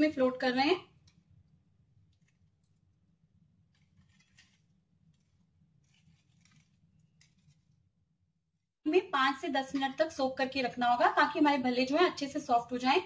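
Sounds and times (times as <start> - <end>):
faint clicks and rustles: 3.6 - 7.8.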